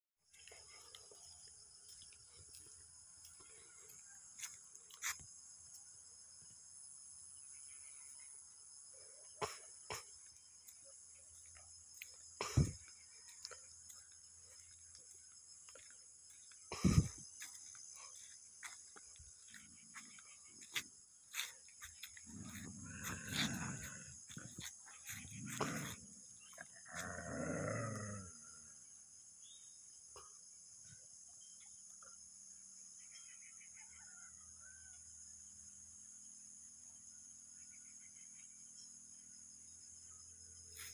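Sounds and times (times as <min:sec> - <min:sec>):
crickets chirping: 0:00.2 - 0:40.9
dogs growling and snarling: 0:22.1 - 0:28.4.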